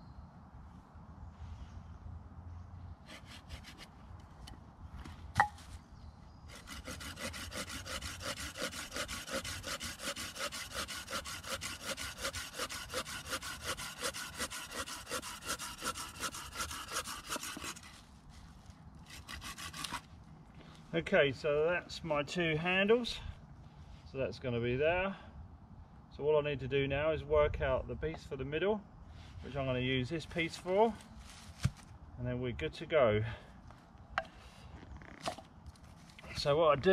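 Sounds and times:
hand saw cutting wood: 0:03.1 - 0:03.9, 0:06.5 - 0:18.0, 0:19.0 - 0:20.1.

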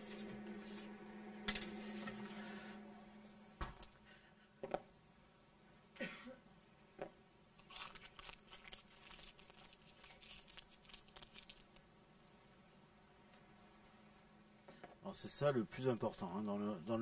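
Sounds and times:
paper crinkling: 0:07.6 - 0:12.3.

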